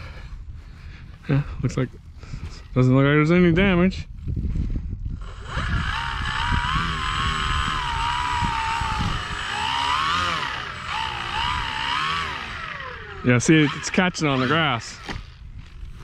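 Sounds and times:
model plane electric motor whining: 5.1 - 16.0.

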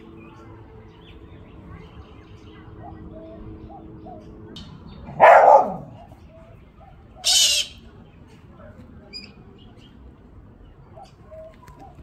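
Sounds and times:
dog barking: 5.1 - 6.2
bird screeching: 7.2 - 7.8.

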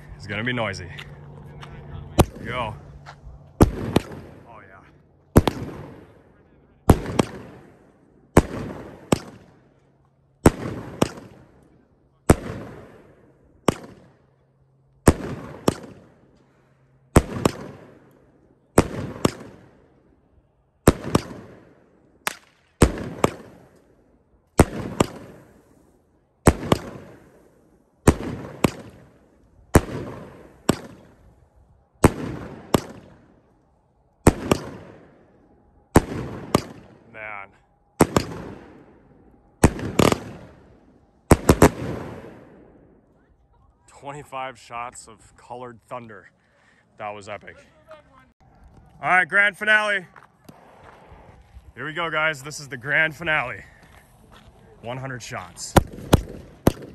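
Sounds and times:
fireworks bangs: 0.2 - 9.6, 15.0 - 16.2, 17.0 - 19.8, 20.8 - 23.9, 24.5 - 31.3, 31.9 - 33.5, 34.2 - 43.0, 49.6 - 56.9.

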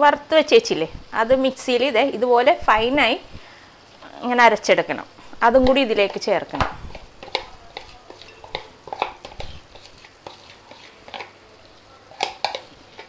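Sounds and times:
metal spoon scraping container: 6.9 - 11.4, 12.1 - 13.0.

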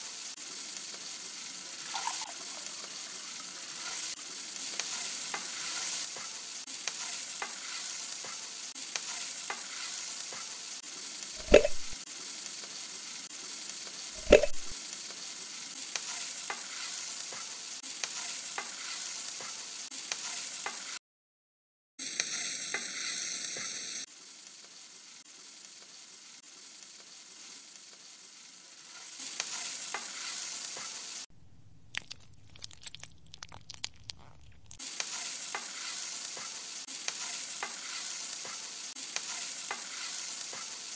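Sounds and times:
sauce sizzling in a pan: 0.0 - 21.0, 22.0 - 40.9
spatula stirring: 31.5 - 34.8.

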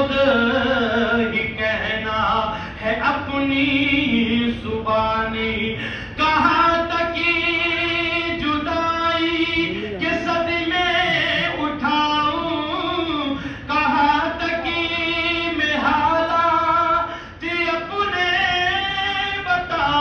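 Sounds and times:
man chanting through loudspeakers: 0.0 - 20.0.

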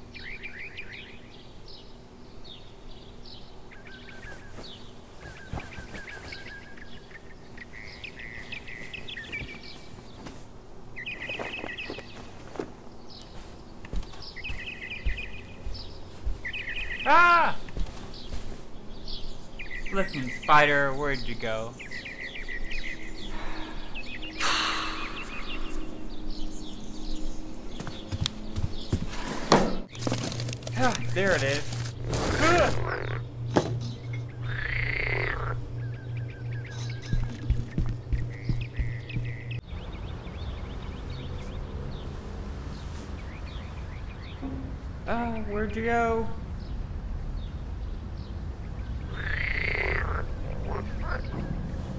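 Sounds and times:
faint steady background hum: 0.0 - 40.6
songbirds chirping: 0.0 - 51.9
soft footsteps: 4.0 - 7.1, 7.8 - 19.3, 27.2 - 32.3, 36.6 - 39.6.

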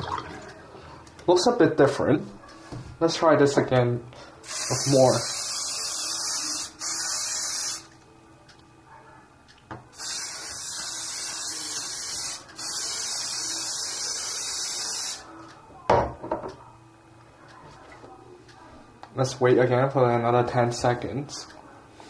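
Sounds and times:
aerosol can spraying hiss: 4.4 - 7.9, 10.0 - 15.3.

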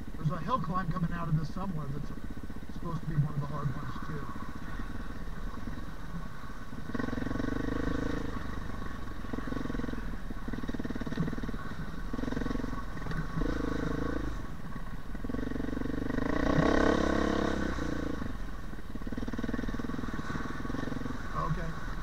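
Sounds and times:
off-road motorcycle engine revving: 0.0 - 22.0.

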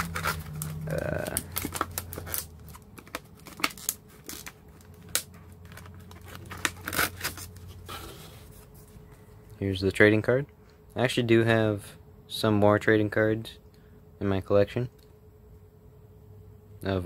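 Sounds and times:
plastic blister pack crackling: 0.0 - 7.8.

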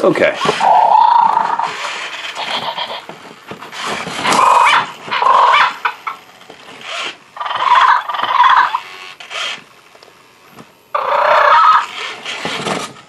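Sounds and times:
toy dinosaur growl and roar: 0.4 - 3.0, 4.2 - 5.6, 11.0 - 12.0.

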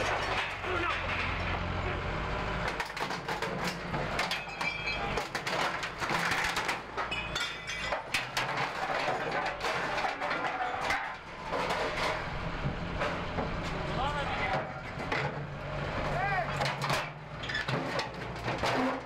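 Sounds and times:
low engine hum: 0.0 - 4.2, 11.3 - 17.4
high metallic squeals: 4.4 - 5.2.

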